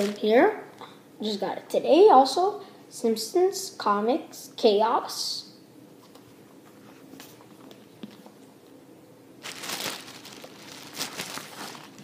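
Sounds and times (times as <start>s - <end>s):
paper rustling and sliding: 9.5s - 12.0s.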